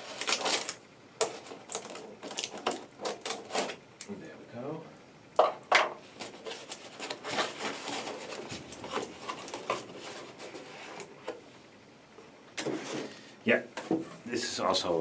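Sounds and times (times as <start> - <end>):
cardboard scraping and rubbing: 6.0 - 11.3
cardboard rustles and light knocks: 6.1 - 11.1.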